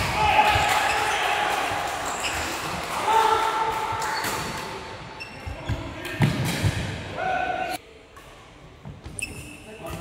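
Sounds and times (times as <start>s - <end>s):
rubber shoe squeak: 9.1s - 9.8s.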